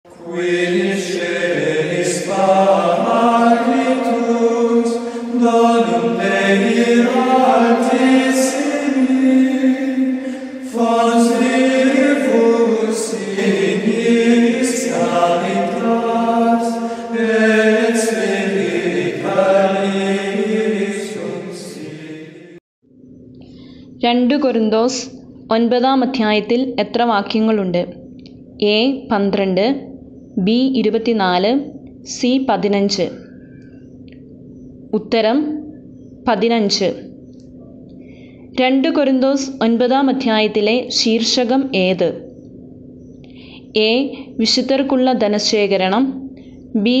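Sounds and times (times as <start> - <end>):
choir chanting: 0.0 - 22.6.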